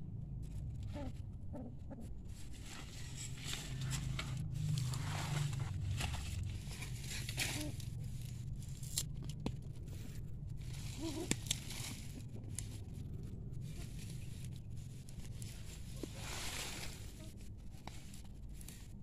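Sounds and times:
low rumble: 0:00.0 - 0:19.0
soil crumbling and tearing: 0:02.7 - 0:19.0
roots snapping: 0:03.5 - 0:09.8, 0:10.7 - 0:12.9.

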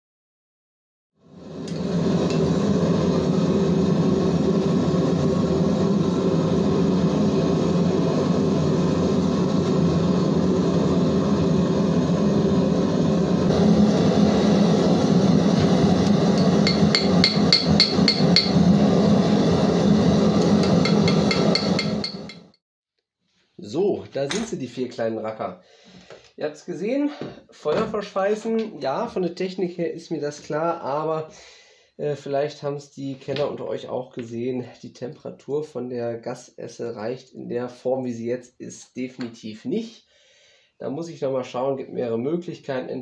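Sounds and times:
gas forge burner roaring: 0:01.3 - 0:22.6
hammer striking hot iron on anvil: 0:16.0 - 0:18.8, 0:20.3 - 0:22.5.

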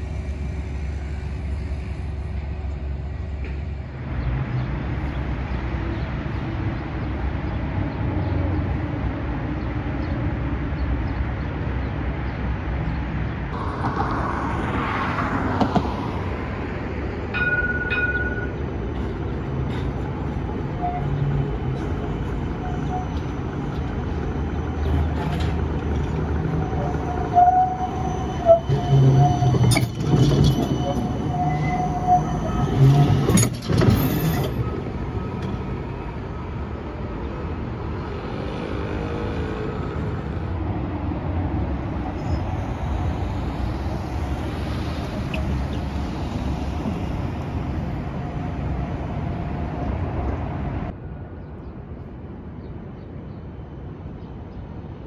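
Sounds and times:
tram and street rumble: 0:00.0 - 0:55.0
tram wheel squeal: 0:17.2 - 0:37.1, 0:41.9 - 0:50.1.

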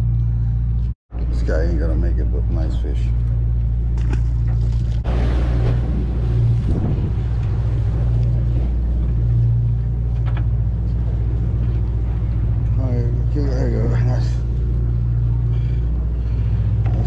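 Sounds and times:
boat engine droning: 0:00.0 - 0:17.0
wind: 0:00.0 - 0:17.0
sea noise: 0:03.0 - 0:17.0.

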